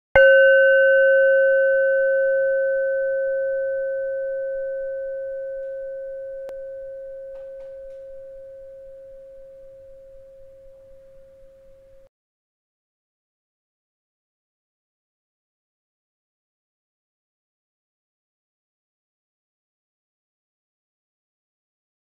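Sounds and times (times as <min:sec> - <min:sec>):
meditation bell ringing: 0:00.2 - 0:12.1.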